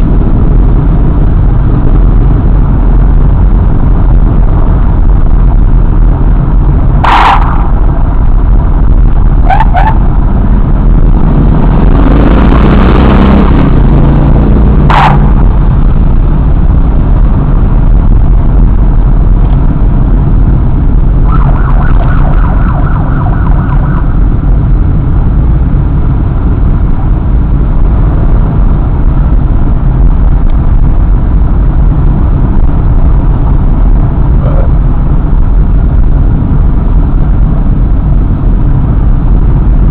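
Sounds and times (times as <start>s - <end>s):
motorcycle engines: 0.0s - 39.9s
wind rumble on microphone: 0.0s - 39.9s
rapid pulsing siren tone: 1.4s - 11.9s, 14.2s - 19.4s, 20.2s - 25.4s.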